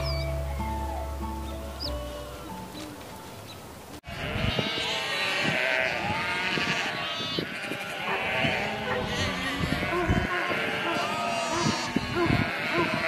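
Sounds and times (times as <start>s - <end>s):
faint music: 0.0s - 4.0s
flock of sheep bleating: 4.0s - 13.0s.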